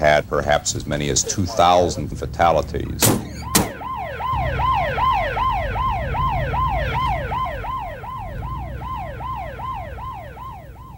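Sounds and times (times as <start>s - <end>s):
low rumble: 2.0s - 10.9s
ambulance siren yelping: 3.2s - 10.9s.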